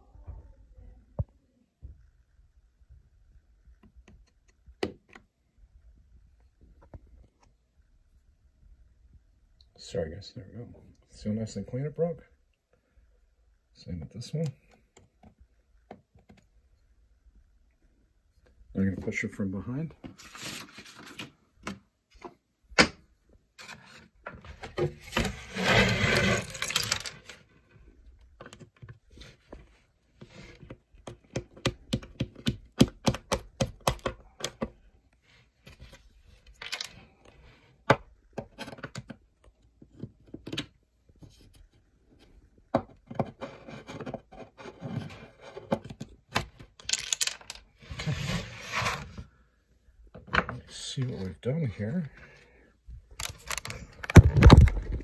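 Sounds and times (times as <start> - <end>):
scraping handling noise: 23.6 - 27.5, 46.6 - 49.3
plastic clicks and knocks: 30.7 - 34.8, 53.2 - 55.0.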